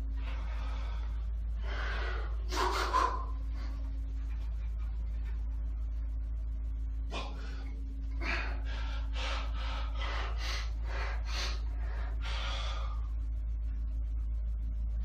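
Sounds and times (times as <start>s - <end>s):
man breathing hard: 0.0s - 4.0s, 7.1s - 13.3s.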